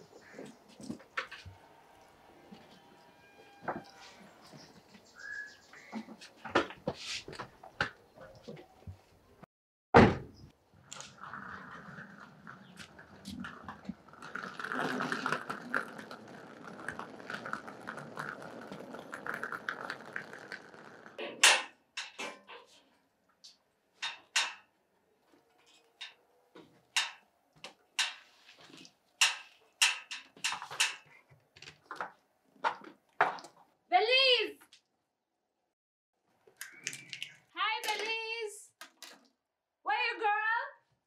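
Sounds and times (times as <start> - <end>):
wheeled suitcase rumbling over paving: 10.9 - 21.2.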